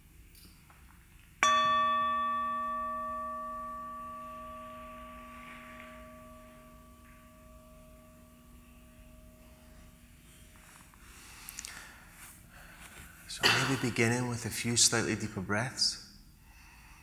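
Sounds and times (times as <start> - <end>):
meditation bell ringing: 1.4 - 10.8.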